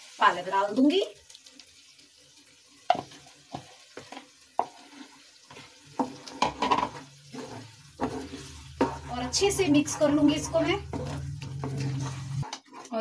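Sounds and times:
faint sizzle: 0:00.0 - 0:13.0
wooden spatula scraping bowl and pan: 0:02.9 - 0:13.0.

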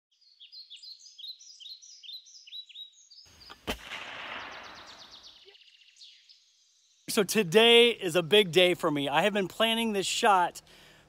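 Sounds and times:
bird chirping: 0:00.1 - 0:08.8
gunshot with rumble: 0:03.6 - 0:05.4.

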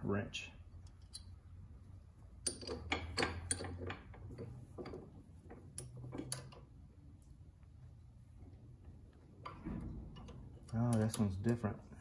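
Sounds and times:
metal tools clinking: 0:00.7 - 0:01.6, 0:02.4 - 0:05.0, 0:10.2 - 0:11.7.

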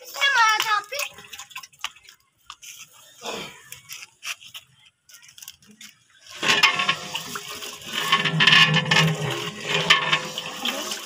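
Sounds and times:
water splashing into a metal pot: 0:00.0 - 0:02.2, 0:06.2 - 0:11.0
liquid sloshing in a pot: 0:06.2 - 0:11.0.

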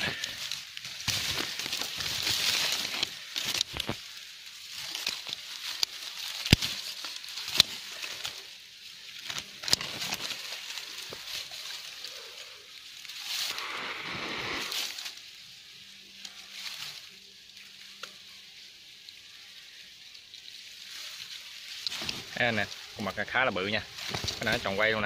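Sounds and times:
branches snapping: 0:00.0 - 0:15.2, 0:21.7 - 0:25.0
leaves and twigs rustling: 0:00.0 - 0:25.0.

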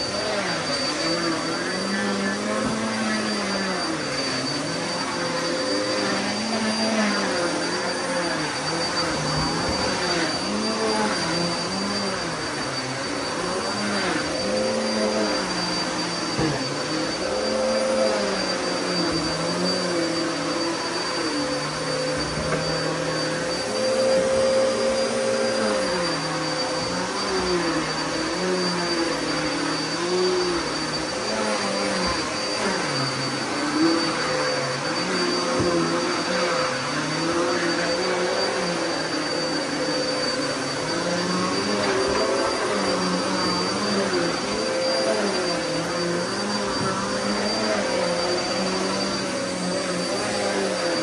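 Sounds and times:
vacuum cleaner on carpet: 0:00.0 - 0:51.0.

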